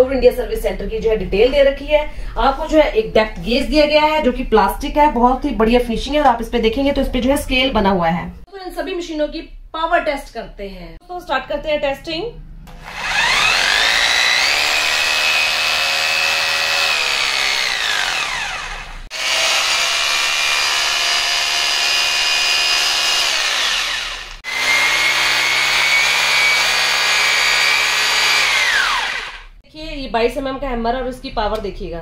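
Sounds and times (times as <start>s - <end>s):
rotary hammer motor whining: 12.7s - 29.6s.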